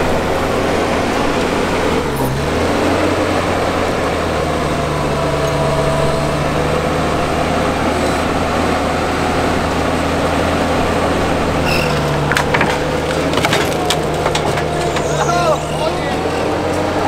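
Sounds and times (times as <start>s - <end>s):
sweeper engine running: 0.0s - 17.0s
sharp knocks: 11.8s - 15.6s.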